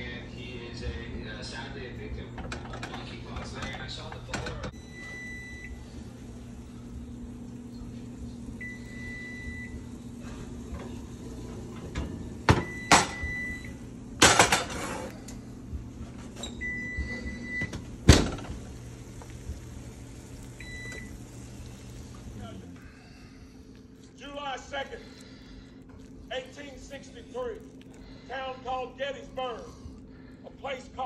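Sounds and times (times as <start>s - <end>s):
steady hum: 0.0s - 31.0s
oven beeping: 1.4s - 22.6s
skillet scraping on oven rack: 14.2s - 15.4s.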